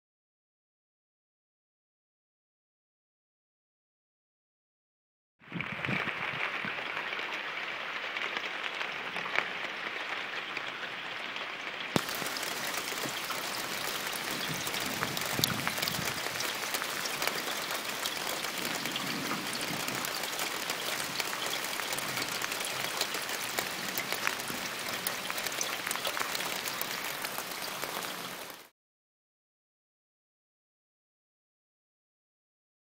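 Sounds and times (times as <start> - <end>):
rain on gutter and roof: 5.5 - 28.7
drops ticking: 12.0 - 28.4.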